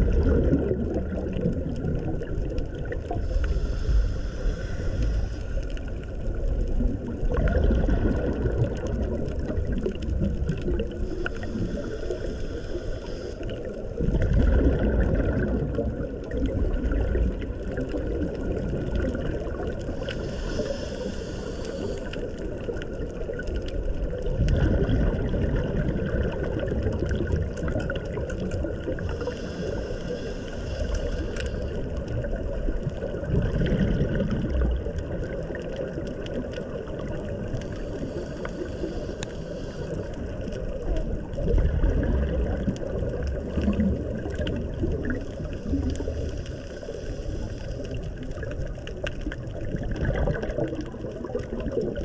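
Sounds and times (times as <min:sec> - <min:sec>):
steady low rumble: 0:00.0 - 0:27.8
water sloshing and gurgling: 0:00.0 - 0:52.0.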